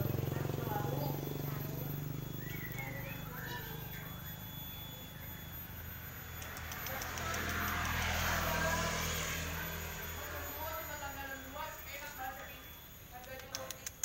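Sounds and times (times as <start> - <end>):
engine passing by: 0.0 - 4.9, 6.0 - 11.7.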